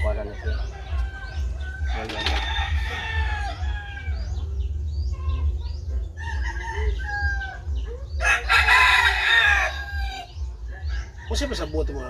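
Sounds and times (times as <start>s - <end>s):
chickens clucking: 0.0s - 12.0s
rooster crowing: 0.7s - 4.4s, 6.2s - 7.6s, 8.2s - 11.8s.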